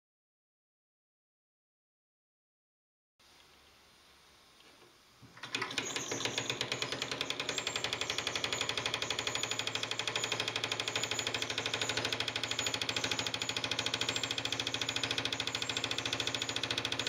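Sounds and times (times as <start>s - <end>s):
toy steam engine chuffing: 5.4s - 17.0s.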